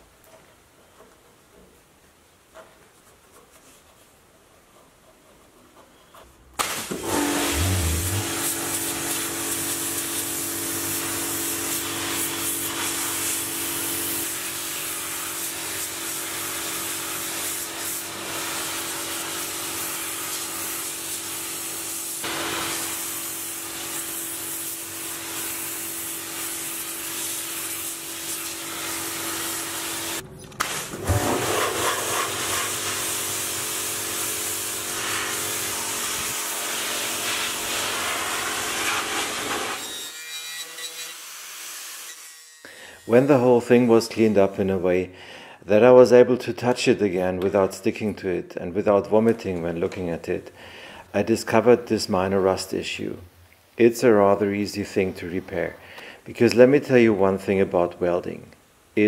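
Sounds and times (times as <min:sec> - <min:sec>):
pressure washer jet hissing: 0:06.6 - 0:39.8
cleaner motor hum: 0:06.7 - 0:14.2.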